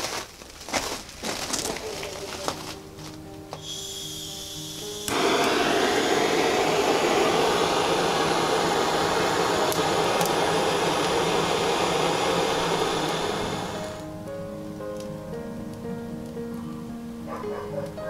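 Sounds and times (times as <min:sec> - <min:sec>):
wood fire rushing in stove: 0:00.0 - 0:14.1
fire crackles: 0:00.0 - 0:18.0.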